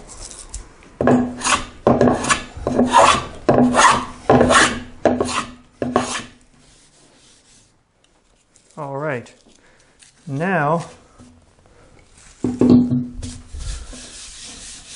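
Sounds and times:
hand plane cutting wood: 0:01.0 - 0:06.4.

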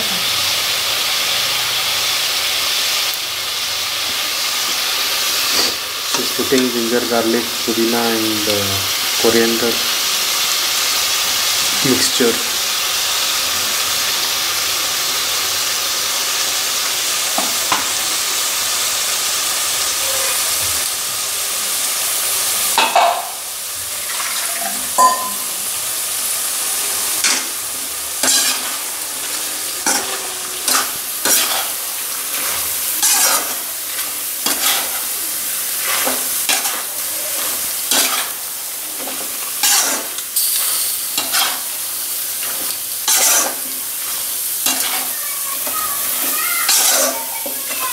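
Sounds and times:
chicken sizzling in oil: 0:00.0 - 0:47.9
metal spatula scraping pan: 0:27.2 - 0:35.1, 0:35.8 - 0:38.4, 0:39.0 - 0:41.7, 0:42.4 - 0:45.1, 0:46.2 - 0:47.8.

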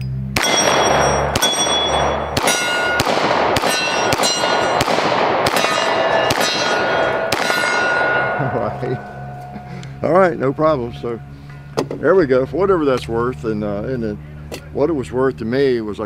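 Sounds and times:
steel targets ringing: 0:00.1 - 0:15.2
pistol shots: 0:00.4 - 0:08.3.

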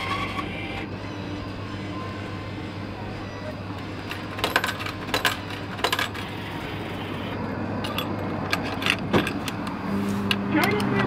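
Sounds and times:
coins clinking in a tray: 0:04.0 - 0:06.2.

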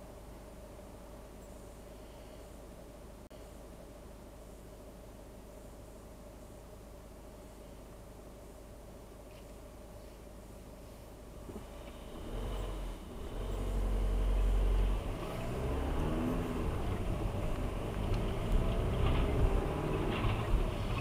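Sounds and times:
road noise: 0:00.0 - 0:21.0
car engine revving: 0:11.5 - 0:21.0.

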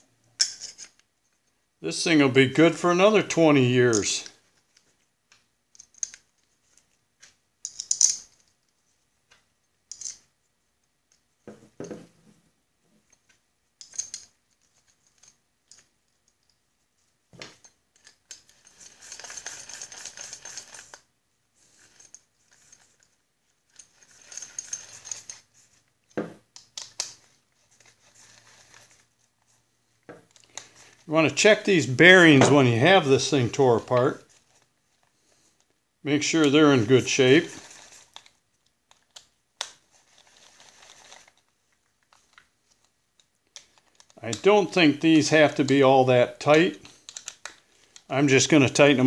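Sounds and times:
metal parts clinking: 0:07.6 - 0:08.5, 0:09.9 - 0:10.3, 0:13.8 - 0:16.6, 0:23.7 - 0:25.4.

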